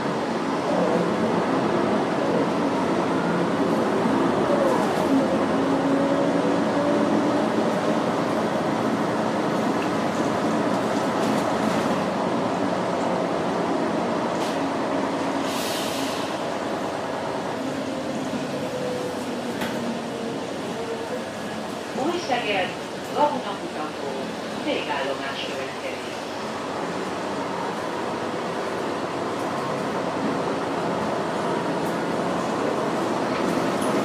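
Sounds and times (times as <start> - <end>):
bus engine and road noise: 0.0 - 34.0
short air hiss: 15.4 - 16.4.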